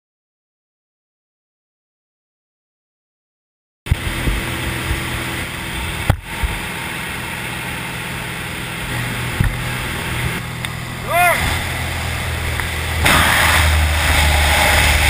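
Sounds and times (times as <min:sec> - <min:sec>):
light aircraft engine drone: 0:03.9 - 0:15.0
rushing wind: 0:03.9 - 0:15.0.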